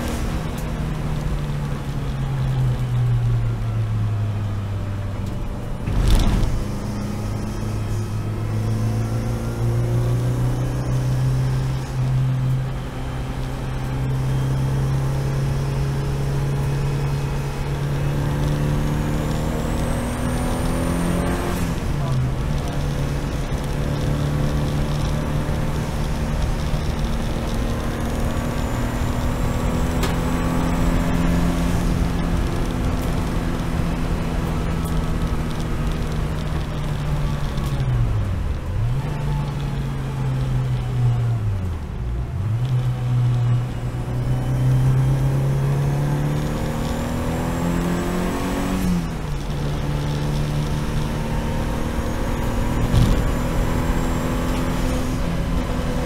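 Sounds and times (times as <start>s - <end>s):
sharp thump: 5.8s - 6.8s, 52.8s - 53.3s
race car engine running: 14.4s - 40.7s, 45.1s - 56.0s.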